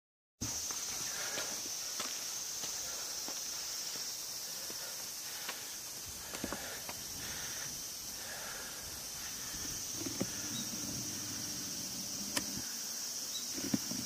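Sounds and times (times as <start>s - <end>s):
high-pitched insect drone: 0.4s - 14.0s
sharp clicks: 12.3s - 12.6s.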